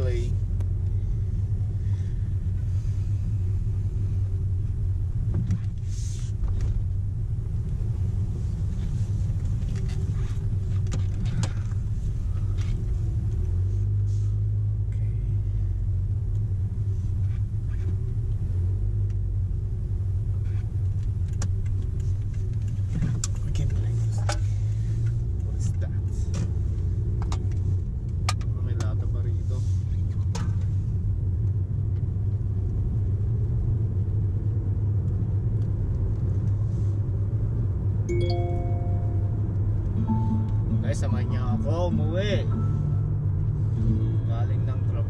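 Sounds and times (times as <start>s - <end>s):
car engine and road rumble: 0.0s - 45.0s
faint clicks and rattles: 20.3s - 29.1s.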